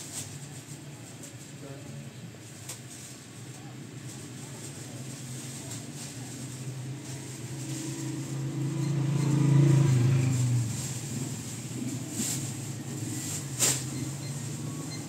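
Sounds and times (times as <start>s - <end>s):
vehicle engine passing by: 5.0s - 15.0s.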